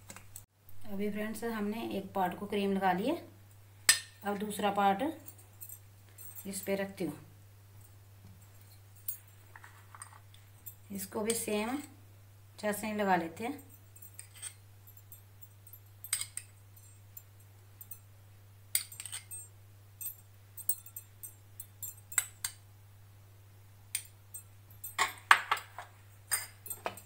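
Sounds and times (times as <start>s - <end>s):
faint low hum: 0.0s - 27.0s
spoon clinking against glass bowl: 13.8s - 18.0s, 18.8s - 22.6s, 24.0s - 27.0s.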